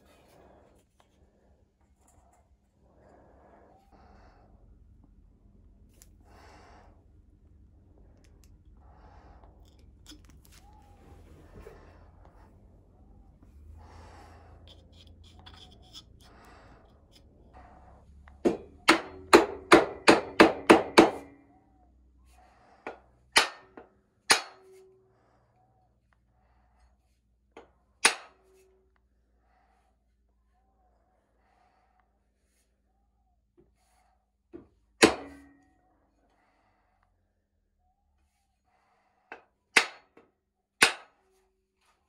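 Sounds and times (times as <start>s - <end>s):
hammer striking wooden wedge: 18.4s - 21.4s, 22.9s - 24.7s, 28.0s - 28.4s, 35.0s - 35.6s, 39.8s - 40.2s, 40.8s - 41.2s.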